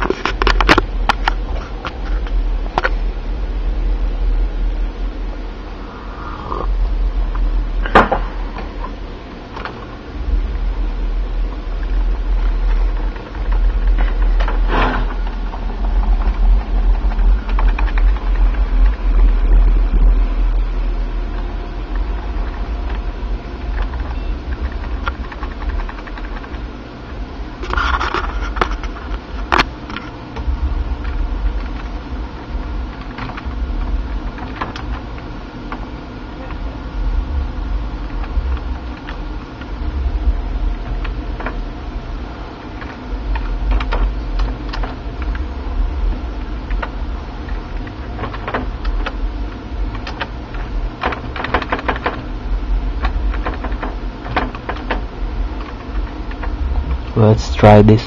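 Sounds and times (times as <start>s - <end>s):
computer fans humming: 0.0s - 58.0s
sharp clicks: 23.6s - 26.7s.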